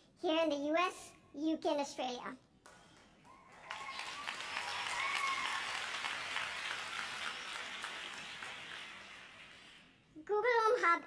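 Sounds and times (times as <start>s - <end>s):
audience applauding: 3.0s - 10.0s.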